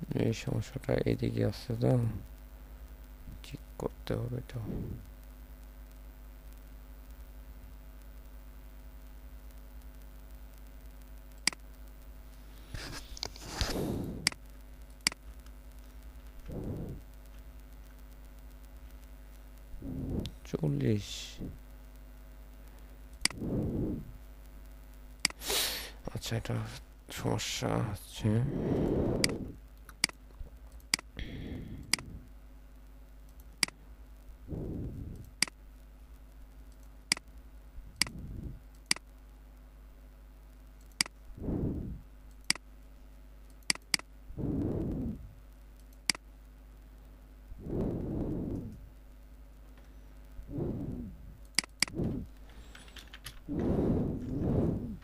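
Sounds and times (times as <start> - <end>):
faint hum: 0.0 - 55.0
computer clicks: 11.3 - 11.7, 14.2 - 15.5, 29.2 - 31.2, 31.8 - 32.1, 36.7 - 37.4, 38.0 - 39.1, 40.8 - 41.2, 42.3 - 42.7, 43.4 - 44.1, 45.7 - 46.3, 51.4 - 53.4
soft rushing noises: 53.5 - 55.0.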